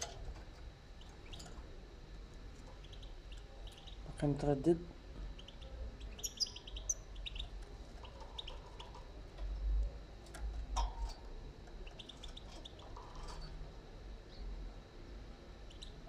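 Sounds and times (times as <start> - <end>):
goldfinch chirping: 5.4 - 7.5.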